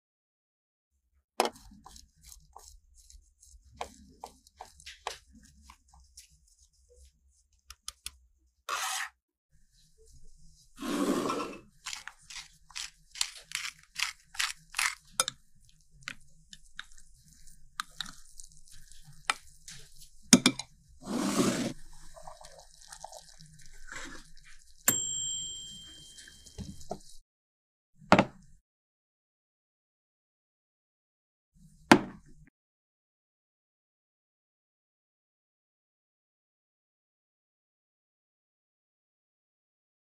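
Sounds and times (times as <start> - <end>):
crunchy squishy cutting strokes: 11.8 - 15.2
high ringing tone: 24.9 - 26.6.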